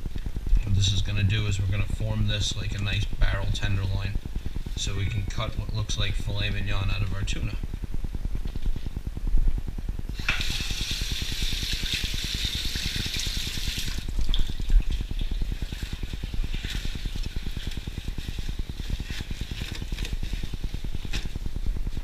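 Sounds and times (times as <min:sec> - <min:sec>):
steady low hum: 0:00.0 - 0:22.0
tap water running into sink: 0:10.2 - 0:16.8.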